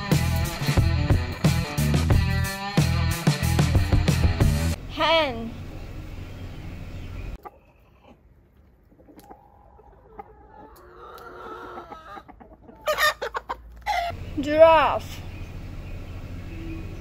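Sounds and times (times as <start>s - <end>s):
steady low hum: 4.7s - 7.4s, 14.1s - 17.0s
chickens squawking: 6.8s - 14.3s
chickens clucking softly: 7.4s - 14.2s.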